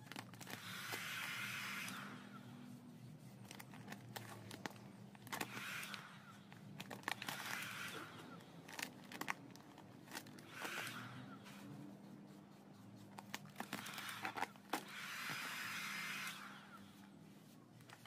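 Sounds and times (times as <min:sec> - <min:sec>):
vinyl film crinkling and crackling: 0:00.0 - 0:01.0, 0:02.6 - 0:05.9, 0:06.5 - 0:14.8.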